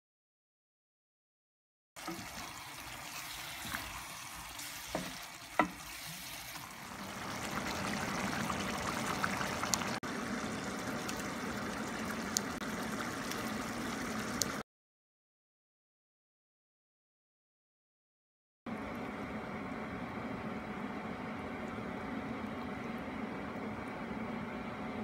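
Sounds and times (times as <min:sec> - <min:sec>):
broth bubbling at the boil: 0:02.0 - 0:14.6
vegetables sizzling in a pan: 0:02.0 - 0:14.6
spatula knocking: 0:04.8 - 0:06.1.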